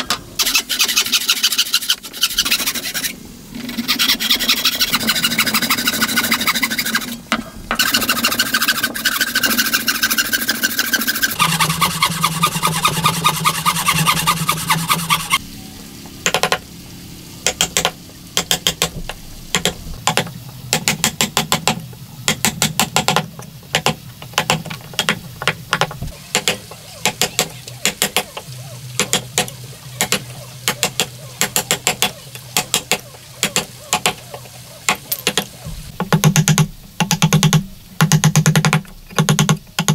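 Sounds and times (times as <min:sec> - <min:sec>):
saw rasping through wood: 0:00.4 - 0:03.2, 0:03.8 - 0:07.2, 0:07.8 - 0:15.4.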